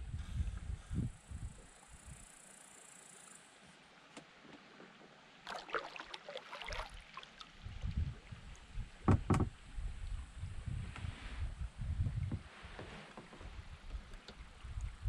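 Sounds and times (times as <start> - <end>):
paddle splashing water: 5.4 - 8.3.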